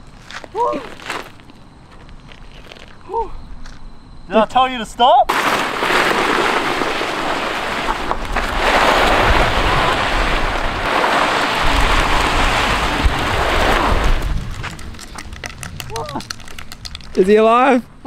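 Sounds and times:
clothing scraping on asphalt: 0.0s - 3.0s, 5.8s - 15.0s
wind rumble on microphone: 7.8s - 18.0s.

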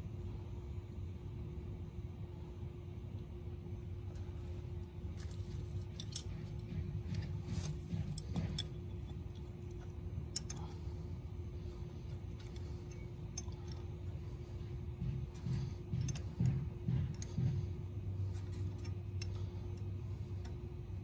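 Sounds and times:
wrench clicking on metal: 10.3s - 10.6s.

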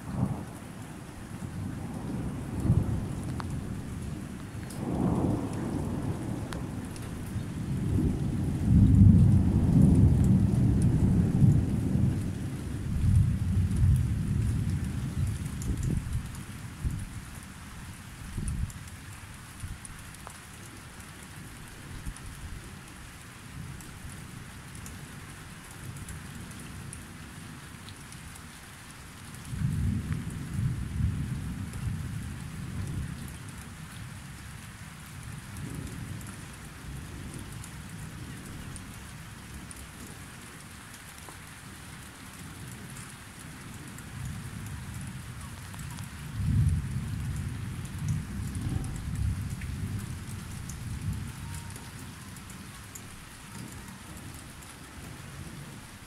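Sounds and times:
steady rain hiss: 0.0s - 56.0s
deep roll of thunder: 1.6s - 17.0s, 46.1s - 52.6s.

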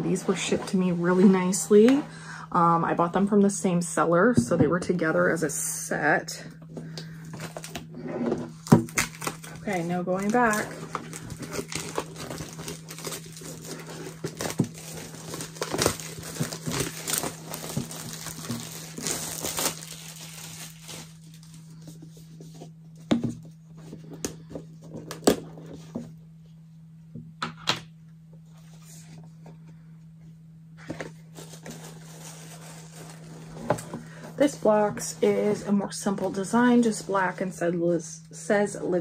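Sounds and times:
plastic wrapping tearing and crinkling: 8.5s - 22.0s, 31.3s - 34.6s.

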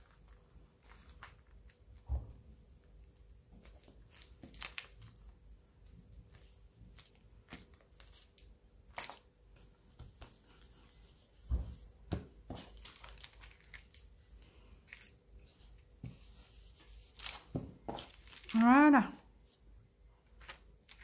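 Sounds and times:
plastic sheet crinkling: 0.0s - 2.1s, 2.8s - 11.6s, 12.4s - 19.2s, 20.2s - 21.0s.

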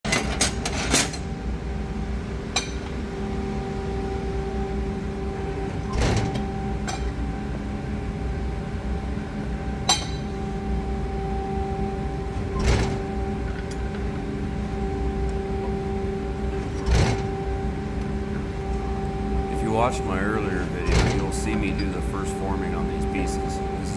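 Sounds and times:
press brake humming: 2.4s - 23.9s
metal clanking: 9.8s - 10.4s, 12.4s - 14.1s, 16.5s - 17.4s, 20.7s - 22.0s.

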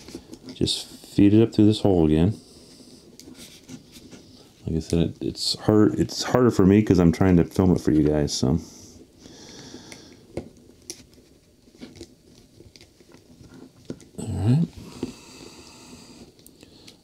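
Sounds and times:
man speaking: 0.6s - 2.4s, 4.6s - 8.7s, 14.2s - 14.8s
clicks and rustles of wire handling: 9.9s - 15.2s.

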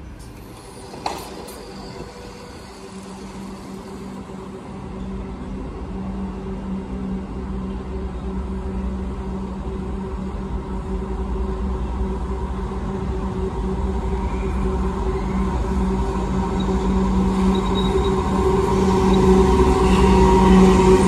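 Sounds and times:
train rumble: 0.0s - 21.0s.

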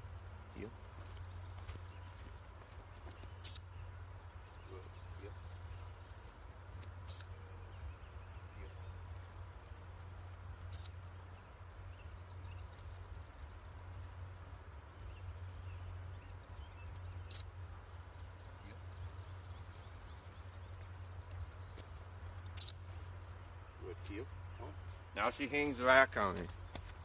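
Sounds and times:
low steady background hum: 0.0s - 27.0s
dog-training whistle blasts: 3.4s - 3.7s.

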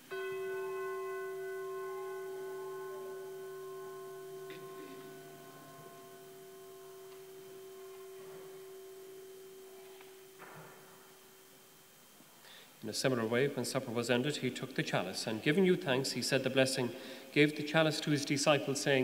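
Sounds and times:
bell ringing: 0.0s - 11.7s.

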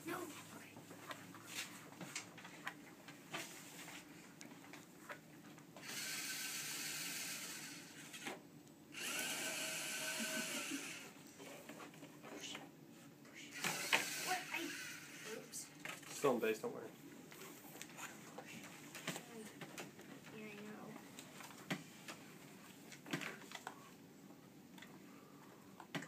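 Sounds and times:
electric motors whining: 5.8s - 8.0s, 9.0s - 11.2s, 13.5s - 15.6s.

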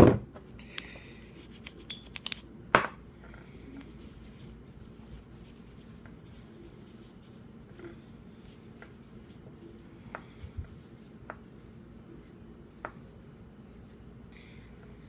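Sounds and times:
cloth rubbing on metal: 3.9s - 9.8s.

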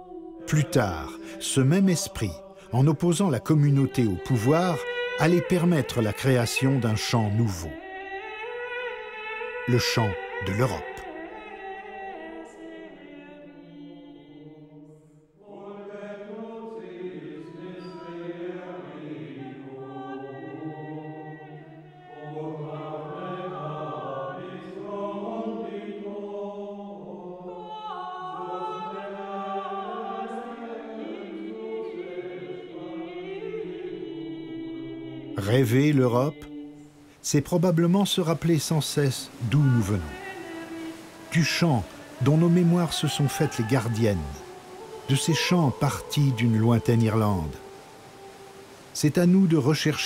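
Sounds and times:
monks chanting: 15.4s - 36.7s, 37.6s - 50.0s.

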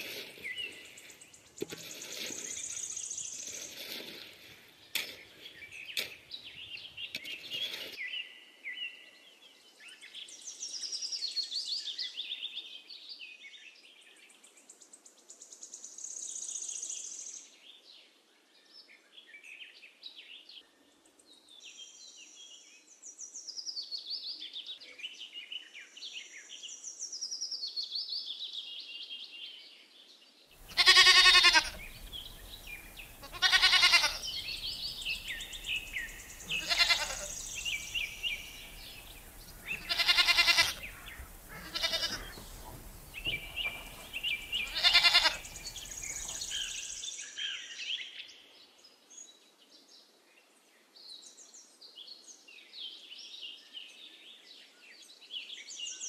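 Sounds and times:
small birds chirping: 0.0s - 8.3s, 30.6s - 47.6s
goats bleating: 30.6s - 46.4s.

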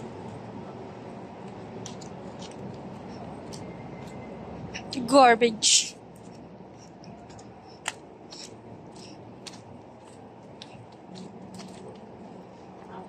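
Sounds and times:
low street hiss: 0.0s - 13.0s
quiet footsteps: 6.2s - 13.0s.

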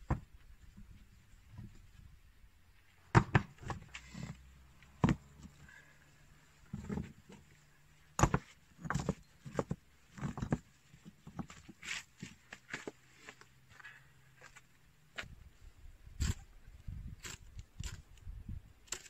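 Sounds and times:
rocks scraping: 3.6s - 13.4s.

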